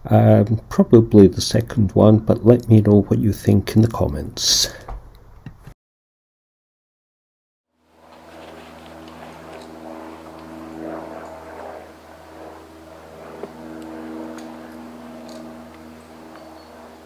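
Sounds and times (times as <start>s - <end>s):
engine humming drone: 7.8s - 17.0s.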